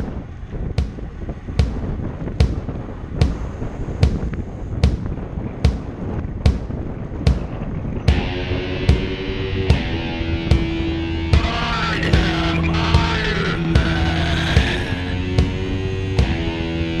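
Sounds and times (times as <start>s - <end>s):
low rumbling wash: 0.0s - 17.0s
sharp percussive hits: 8.1s - 16.4s.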